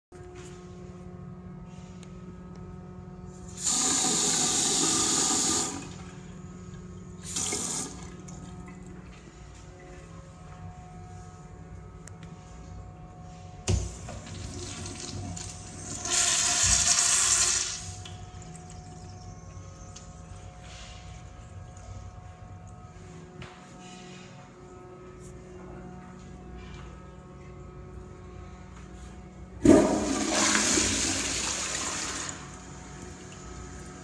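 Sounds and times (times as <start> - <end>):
urinal flushing: 3.5 - 9.3, 13.8 - 22.4, 29.6 - 34.0.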